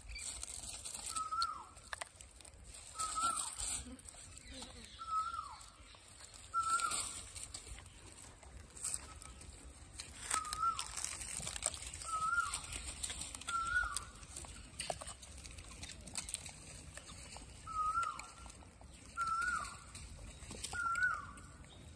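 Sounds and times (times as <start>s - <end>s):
monkeys scuffling and clicking: 0.0s - 21.8s
high whistle-like animal calls: 6.5s - 7.2s, 10.2s - 11.0s, 12.0s - 12.8s, 19.2s - 19.9s.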